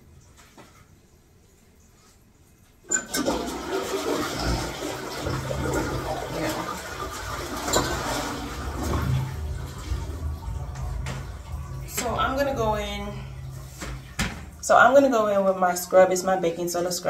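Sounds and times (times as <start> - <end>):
water rushing: 2.9 - 15.5.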